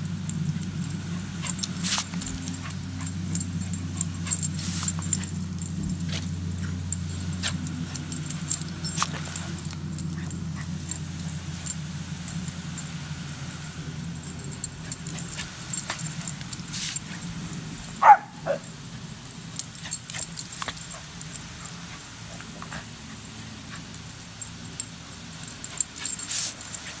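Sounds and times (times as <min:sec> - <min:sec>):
garden hose spraying water: 0:00.0 - 0:27.0
dog yipping: 0:18.0 - 0:18.7.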